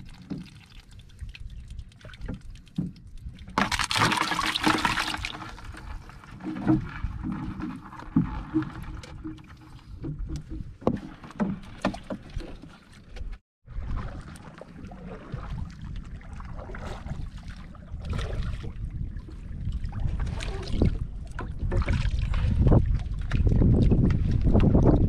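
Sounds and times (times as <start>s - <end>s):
water splashing: 0.0s - 24.8s
knocks and clatter in basin: 2.2s - 12.6s
wind buffeting microphone: 14.9s - 25.0s.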